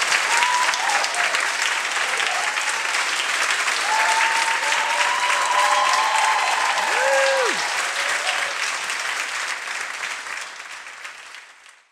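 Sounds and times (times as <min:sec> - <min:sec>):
people cheering: 0:00.0 - 0:09.3
audience applauding: 0:00.0 - 0:11.9.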